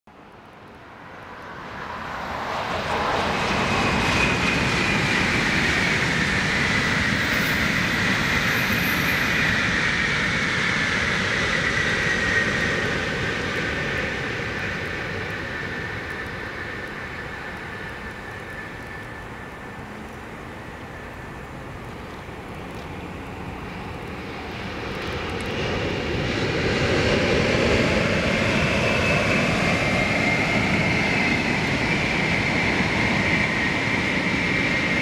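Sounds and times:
train passing rushing noise: 0:01.0 - 0:35.0.

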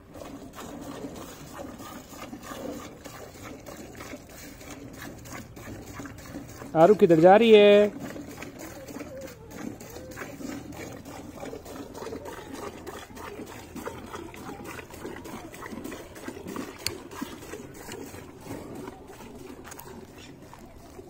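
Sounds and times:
milk squirting into a pail: 0:00.0 - 0:21.0.

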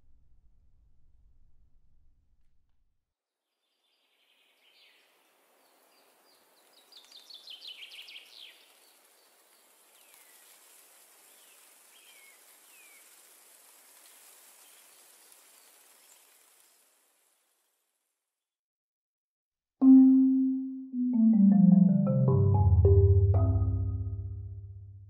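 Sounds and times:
songbird singing: 0:03.8 - 0:09.3
high hiss of insects: 0:05.0 - 0:17.9.

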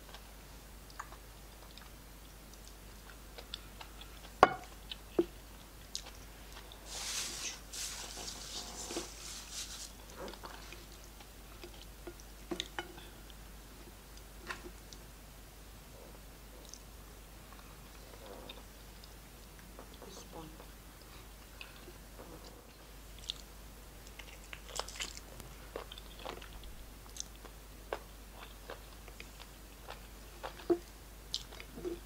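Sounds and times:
person chewing: 0:05.9 - 0:13.2, 0:23.1 - 0:32.0.

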